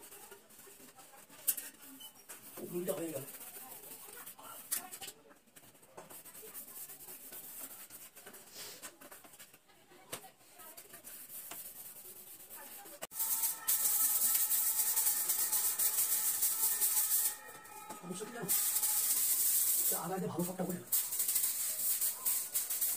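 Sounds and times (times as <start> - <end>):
broom brushing a wall: 0.0 - 4.7, 6.1 - 8.8, 10.6 - 17.5, 18.1 - 22.9.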